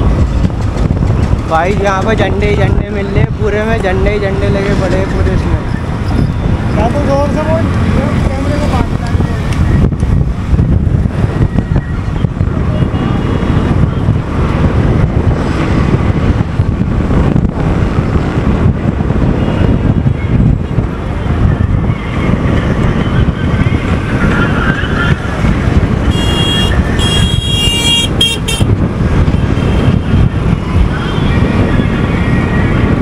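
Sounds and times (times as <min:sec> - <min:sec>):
road traffic rumble: 0:00.0 - 0:33.0
wind buffeting microphone: 0:00.0 - 0:33.0
vehicle horn tooting: 0:26.1 - 0:28.7.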